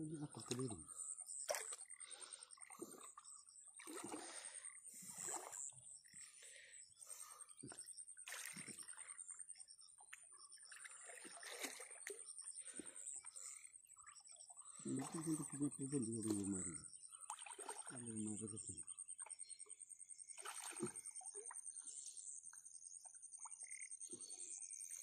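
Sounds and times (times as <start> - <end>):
water sloshing and splashing: 0.3 - 5.8, 8.2 - 13.4, 14.7 - 18.4, 20.3 - 21.4.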